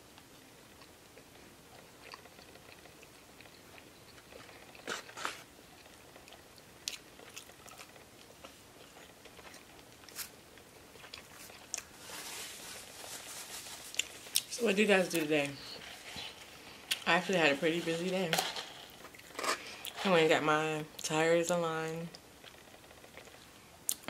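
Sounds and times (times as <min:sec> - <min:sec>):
soft chewing: 0:00.2 - 0:14.5, 0:15.1 - 0:17.1, 0:22.1 - 0:24.0
food crunches: 0:01.7 - 0:12.1, 0:13.8 - 0:14.5.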